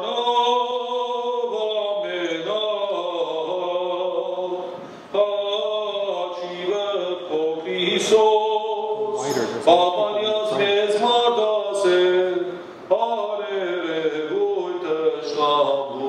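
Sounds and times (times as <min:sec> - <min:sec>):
man chanting: 0:05.2 - 0:16.0.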